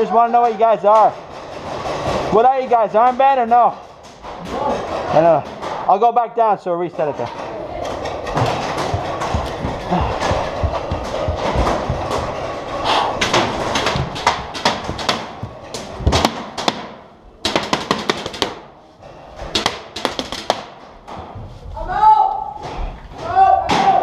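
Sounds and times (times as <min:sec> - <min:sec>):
hurried footsteps: 0:07.9 - 0:16.8.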